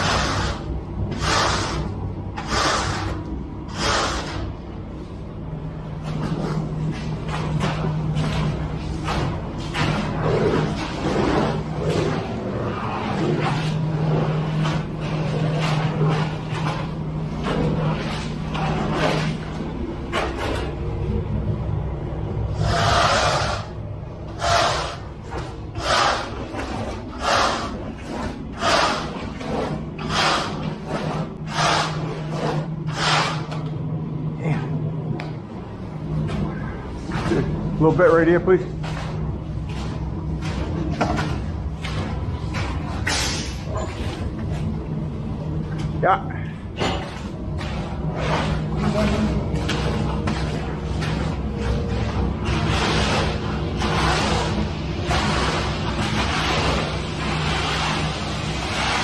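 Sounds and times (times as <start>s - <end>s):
metal straightedge scraping wet concrete: 0.0s - 4.5s, 22.6s - 23.7s, 24.4s - 33.6s, 47.0s - 59.0s
low engine drone: 0.0s - 59.0s.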